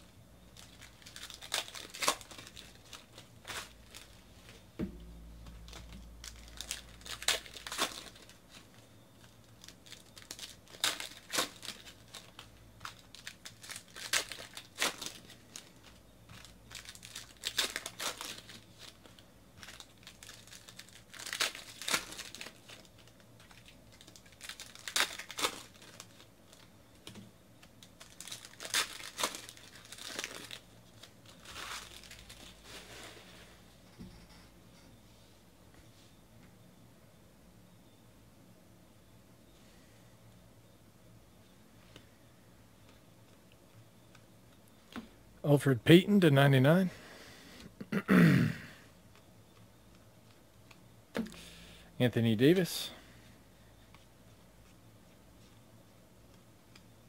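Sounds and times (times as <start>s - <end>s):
foil wrappers crinkling: 0.5s - 4.6s, 5.5s - 26.7s, 27.6s - 33.5s.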